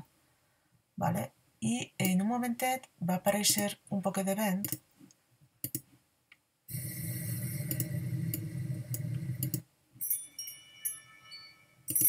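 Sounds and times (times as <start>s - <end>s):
mouse clicks: 5.6s - 6.4s, 7.7s - 9.6s.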